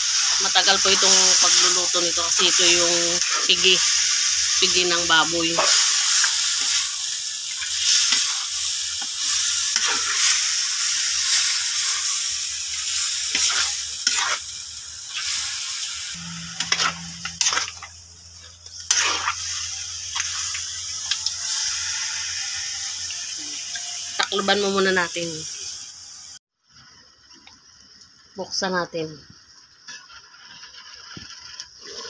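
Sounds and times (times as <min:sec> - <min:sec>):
metal spatula scraping a pan: 0:00.0 - 0:24.7
meat sizzling in a wok: 0:00.0 - 0:32.0.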